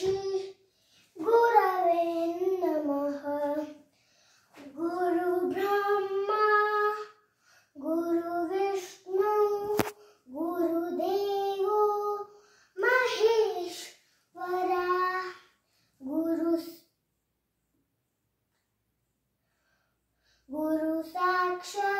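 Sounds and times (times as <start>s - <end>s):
girl singing unaccompanied: 0.0s - 16.9s, 20.4s - 21.9s.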